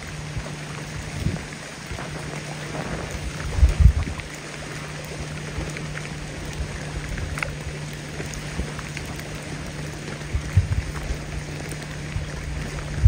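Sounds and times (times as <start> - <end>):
steady low drone: 0.0 - 13.0
water: 0.0 - 13.0
wind gusts buffeting microphone: 0.3 - 4.4, 10.2 - 13.0.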